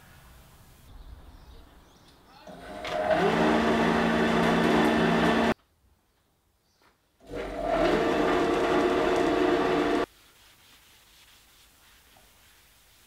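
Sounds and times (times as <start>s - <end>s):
planer motor hum and whine: 2.5s - 5.6s, 7.3s - 10.1s.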